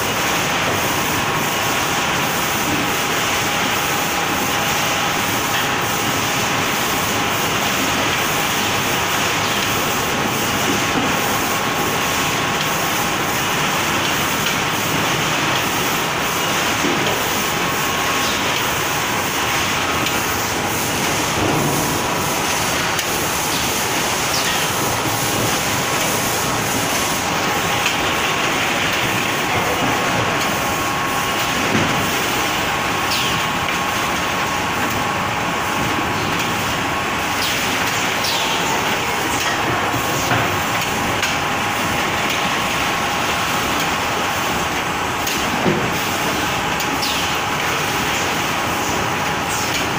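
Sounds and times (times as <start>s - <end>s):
conveyor machine noise: 0.0s - 49.9s.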